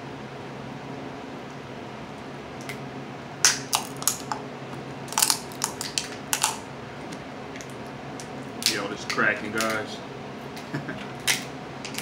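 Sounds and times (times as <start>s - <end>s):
crab shells cracking: 3.4s - 4.4s, 5.0s - 6.7s.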